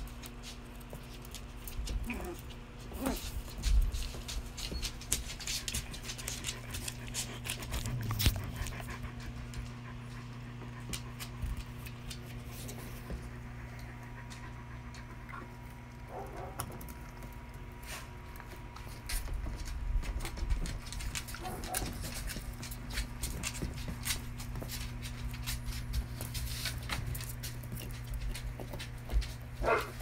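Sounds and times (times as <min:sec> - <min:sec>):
dog claws clicking and scuffling: 0:00.0 - 0:30.0
steady low hum: 0:00.0 - 0:30.0
dog panting: 0:03.2 - 0:16.6.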